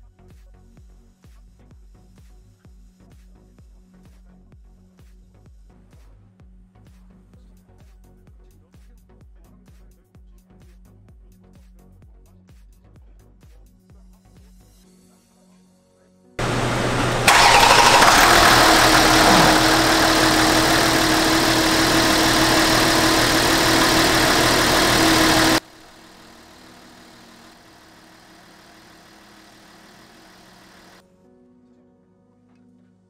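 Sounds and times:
car engine starting and running: 0:16.4 - 0:31.0.

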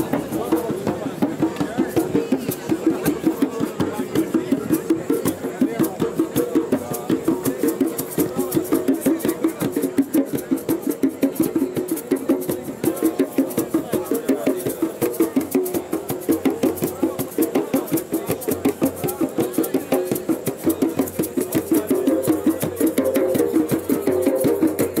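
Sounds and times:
fast drum beat: 0:00.0 - 0:25.0.

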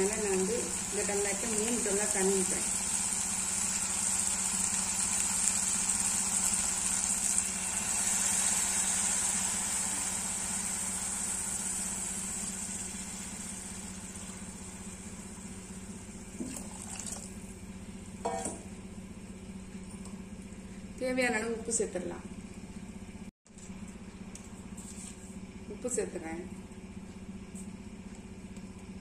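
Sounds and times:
water hissing in hot pot: 0:00.4 - 0:14.8.

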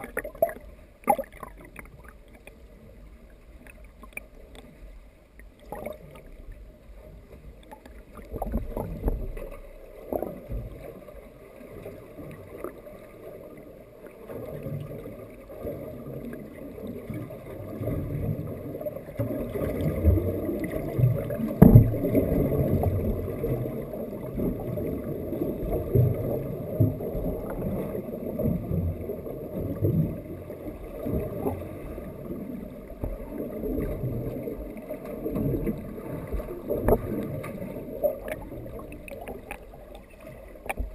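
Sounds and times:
muffled underwater churning: 0:00.0 - 0:40.9.

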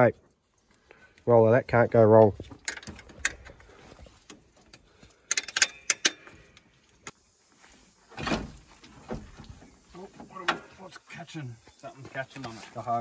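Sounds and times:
spanner clinking on metal: 0:05.2 - 0:06.3.

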